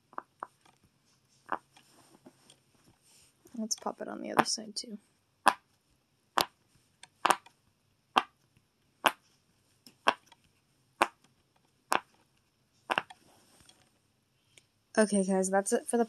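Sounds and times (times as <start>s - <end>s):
fidget toy bubbles popping: 7.2s - 7.4s, 12.9s - 13.1s.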